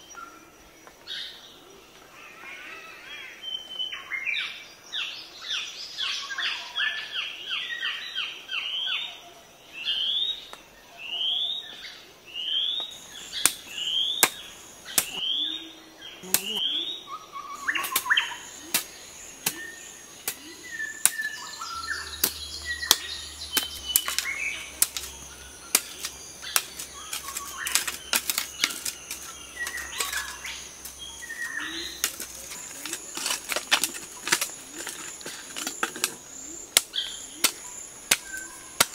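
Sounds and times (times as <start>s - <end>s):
hoe striking earth: 13.4s - 15.3s, 22.1s - 38.9s.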